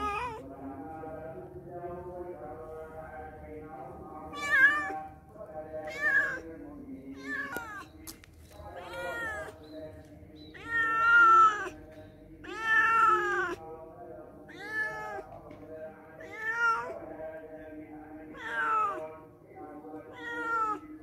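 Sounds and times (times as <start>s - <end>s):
cat meowing: 0.0s - 0.4s, 4.3s - 5.0s, 5.8s - 6.4s, 7.1s - 7.9s, 8.7s - 9.6s, 10.5s - 11.8s, 12.4s - 13.6s, 14.5s - 15.3s, 16.2s - 17.0s, 18.3s - 19.0s, 20.0s - 20.9s.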